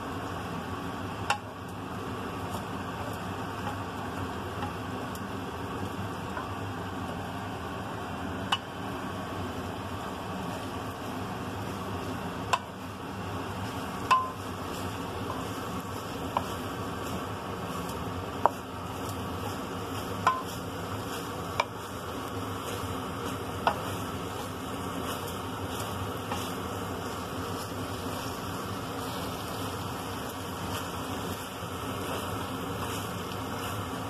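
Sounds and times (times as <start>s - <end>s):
frying hiss: 0.0s - 34.0s
spatula knocking on pan: 14.0s - 21.9s, 22.6s - 28.4s.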